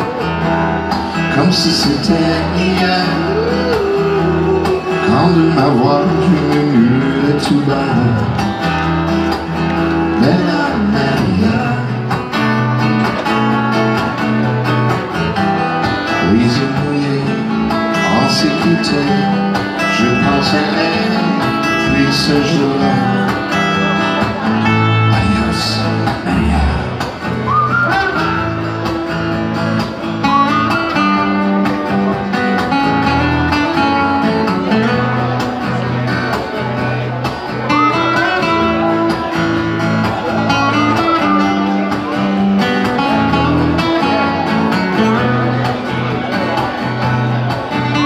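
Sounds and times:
acoustic guitars playing: 0.0s - 48.0s.

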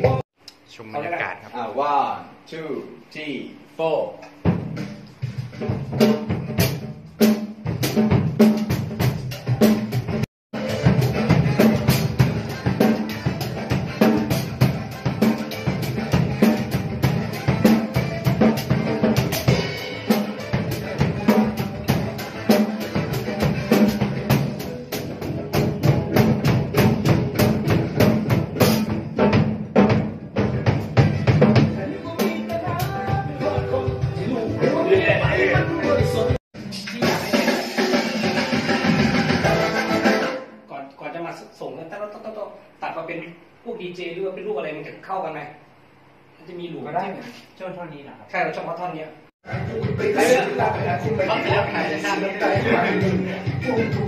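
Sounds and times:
bass drum: 0.0s - 0.2s, 4.4s - 39.7s, 49.5s - 54.0s
cymbals: 4.4s - 30.0s, 34.2s - 40.6s.

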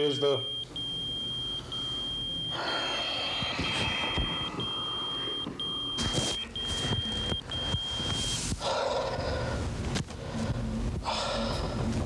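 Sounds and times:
pager beeping: 3.3s - 8.4s.

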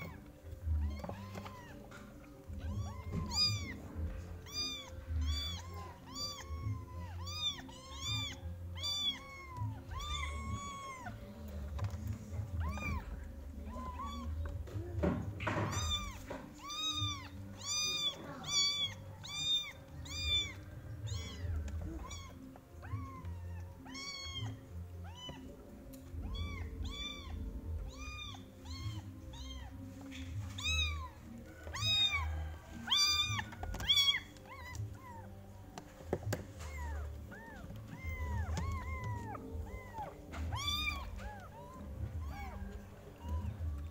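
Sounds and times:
background music: 0.0s - 43.9s
kittens meowing: 0.0s - 43.9s.

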